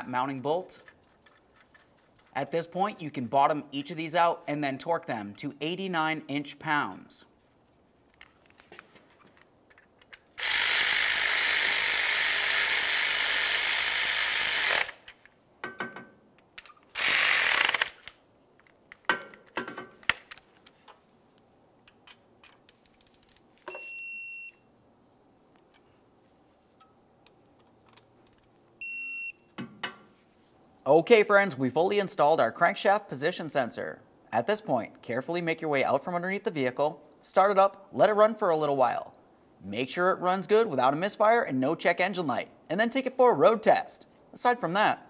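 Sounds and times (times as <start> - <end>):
tool clicks: 8.1 - 20.8
cordless ratchet running: 10.4 - 15.1, 17.0 - 18.1
torque wrench beeps: 23.7 - 24.7, 28.8 - 29.5.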